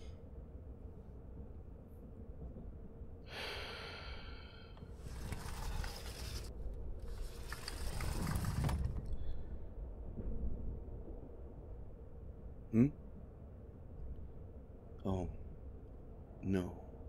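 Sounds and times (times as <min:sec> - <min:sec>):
train interior rumble: 0:00.8 - 0:11.6.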